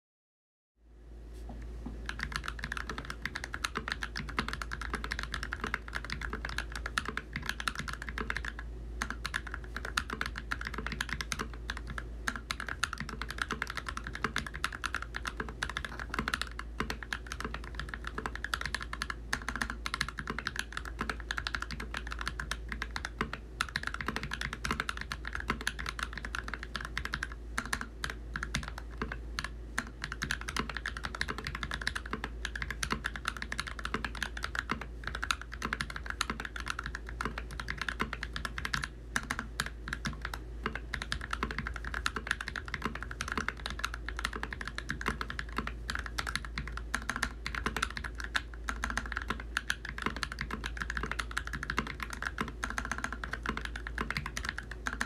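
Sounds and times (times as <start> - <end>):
fast mechanical keyboard typing: 2.0 - 55.0.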